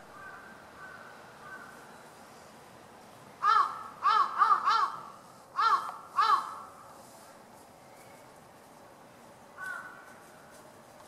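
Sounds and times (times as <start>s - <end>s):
crow cawing: 0.1s - 1.7s, 3.4s - 6.7s, 9.6s - 10.1s.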